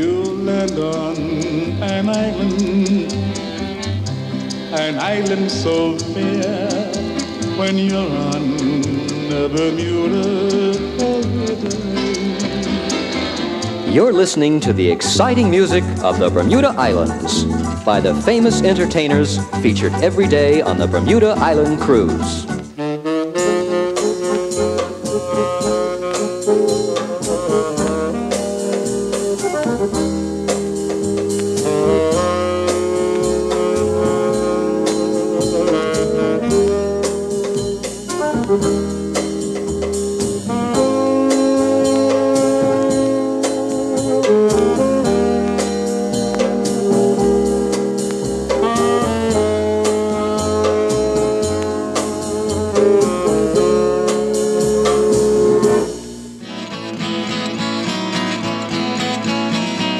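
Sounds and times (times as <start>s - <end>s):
dance-band jazz from vinyl record: 0.0s - 59.9s.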